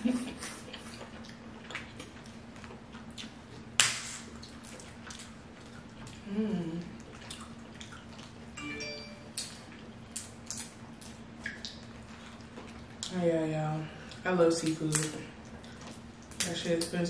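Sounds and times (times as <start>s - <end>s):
sharp crack: 3.8s - 4.3s
person humming: 6.2s - 6.9s
wet clicks of peeling shellfish: 14.0s - 17.0s.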